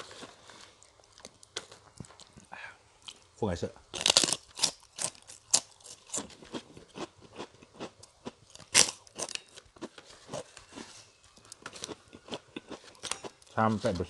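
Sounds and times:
crunching and chewing crackers: 0.0s - 3.3s, 3.9s - 14.0s.

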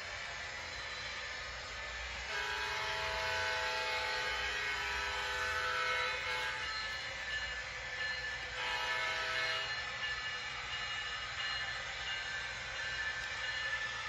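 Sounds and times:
model locomotive diesel horn: 2.2s - 7.0s, 8.5s - 9.8s.

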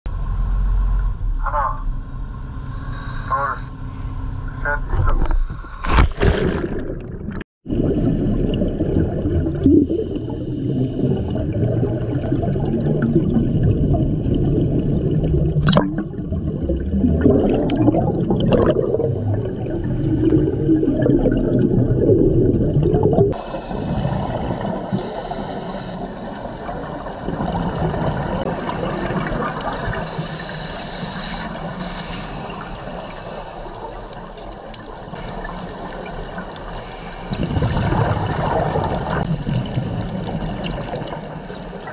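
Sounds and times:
underwater bubbles gurgling: 6.1s - 41.9s.

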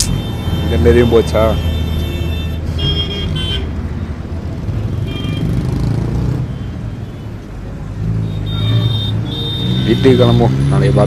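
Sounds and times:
car horn toots: 0.0s - 3.8s, 8.2s - 10.5s
vehicle engines humming: 0.0s - 11.0s.

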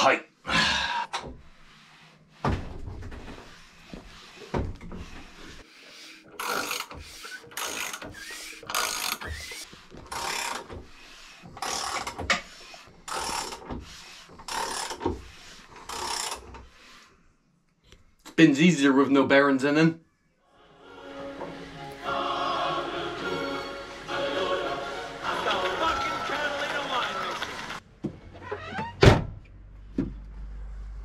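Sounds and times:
ratchet clicking: 15.8s - 16.4s.

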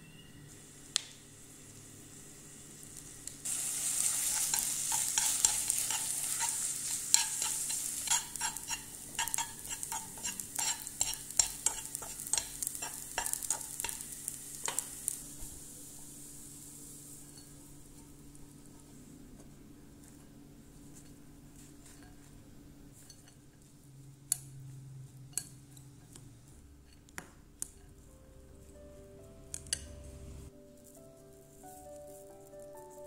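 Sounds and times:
noodles sizzling in a pan: 0.2s - 23.3s, 29.4s - 33.0s
utensil scraping a pan: 3.5s - 15.2s.

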